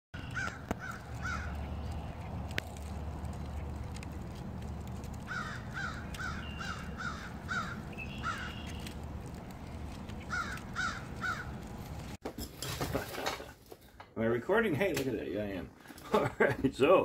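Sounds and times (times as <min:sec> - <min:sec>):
crow cawing: 0:00.2 - 0:01.9, 0:05.2 - 0:08.8, 0:10.2 - 0:11.6
low steady rumble: 0:01.0 - 0:12.2.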